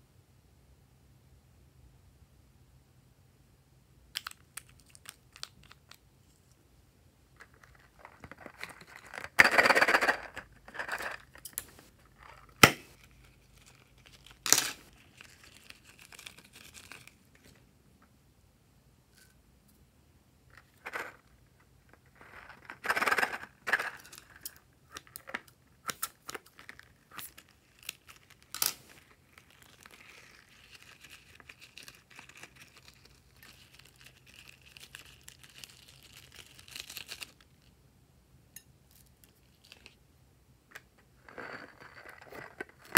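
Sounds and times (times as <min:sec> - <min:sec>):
toy packaging tearing and crinkling: 0:07.5 - 0:17.2, 0:22.1 - 0:25.3, 0:25.9 - 0:37.6
sprinkles rustling: 0:27.1 - 0:37.4.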